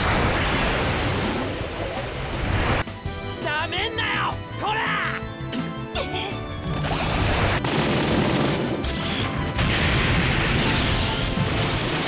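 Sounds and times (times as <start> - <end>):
crashing blasts and explosions: 0.0 - 2.9, 6.7 - 12.0
dramatic orchestral music: 2.2 - 12.0.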